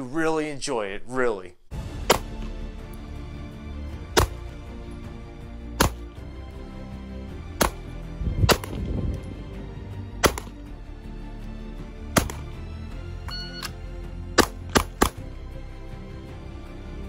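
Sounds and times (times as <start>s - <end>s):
quiet background music: 1.7s - 17.0s
pistol shots: 2.0s - 2.5s, 4.1s - 4.4s, 5.8s - 6.1s, 7.5s - 7.8s, 10.2s - 10.6s, 12.2s - 12.5s, 14.4s - 15.2s.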